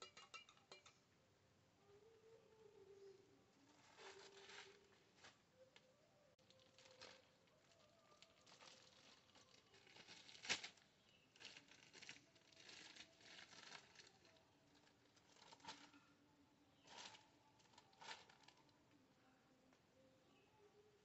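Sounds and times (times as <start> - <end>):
plastic bag rustling: 3.6 - 5.5, 6.4 - 16.0, 16.8 - 18.7.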